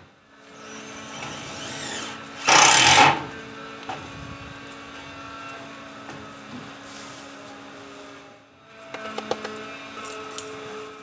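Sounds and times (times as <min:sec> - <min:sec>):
cordless drill running: 0:00.5 - 0:03.3.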